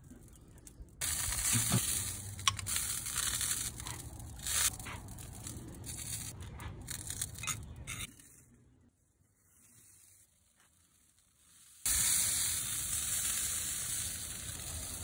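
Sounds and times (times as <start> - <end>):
sauce sizzling in a skillet: 11.5 - 15.0.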